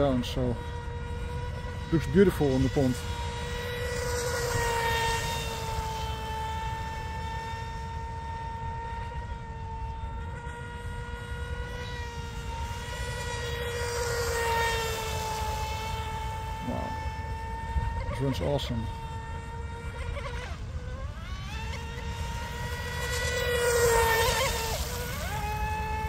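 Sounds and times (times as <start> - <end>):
rc boat electric motor whine: 0.0 - 26.0.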